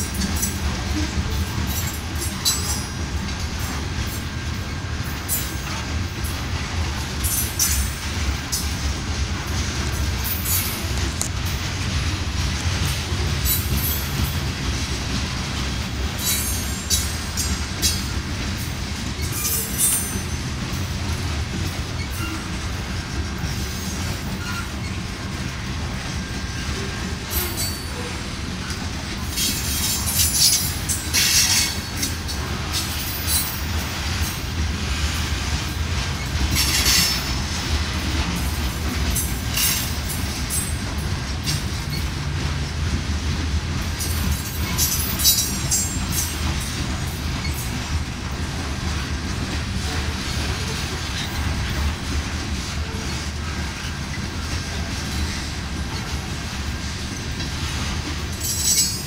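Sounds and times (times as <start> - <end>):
train wheels rumbling on rails: 0.0 - 59.0
high wheel squeal: 22.0 - 22.5, 24.3 - 25.0.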